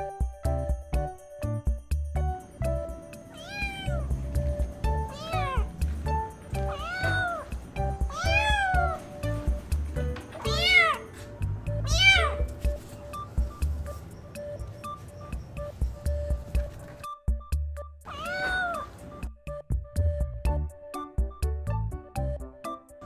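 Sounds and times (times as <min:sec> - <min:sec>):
kitten meowing: 0:03.3 - 0:04.2, 0:04.9 - 0:05.7, 0:06.5 - 0:09.4, 0:10.4 - 0:11.1, 0:11.8 - 0:12.6, 0:18.1 - 0:19.0.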